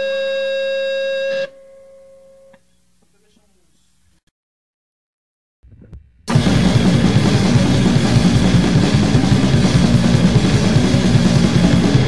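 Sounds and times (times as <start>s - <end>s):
drums: 5.6s - 12.0s
punk band playing loud: 6.3s - 12.0s.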